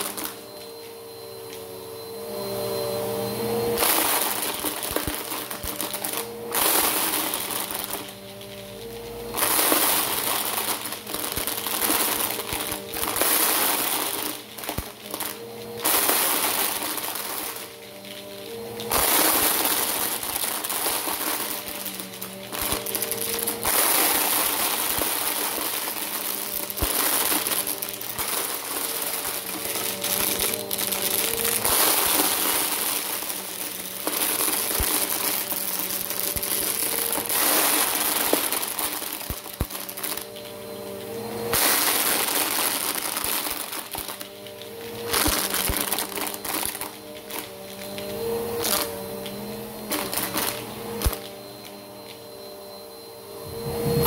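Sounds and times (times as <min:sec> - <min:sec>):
vacuum cleaner motor humming: 0:00.0 - 0:54.0
plastic cubes rattling through nozzle: 0:03.8 - 0:40.6, 0:41.5 - 0:49.0, 0:49.9 - 0:51.3.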